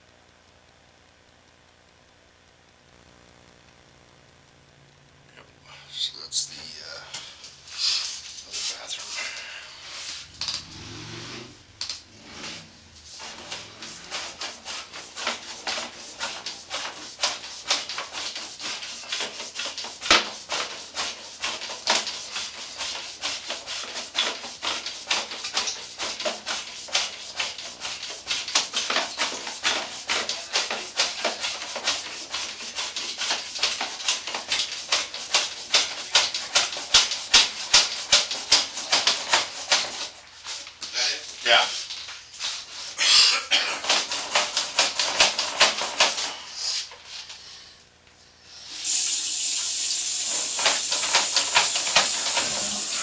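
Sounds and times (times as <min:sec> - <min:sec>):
cable scraping inside drain pipe: 0:09.8 - 0:43.0, 0:50.3 - 0:53.0.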